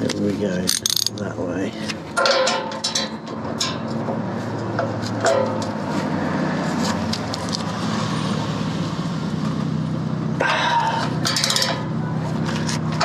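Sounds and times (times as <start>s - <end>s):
motor vehicle engine running: 3.1s - 13.0s.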